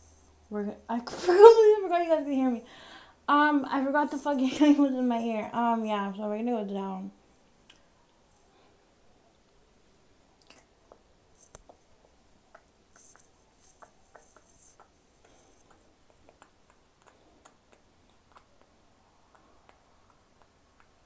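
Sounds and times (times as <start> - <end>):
faint clicks: 10.4 - 21.0.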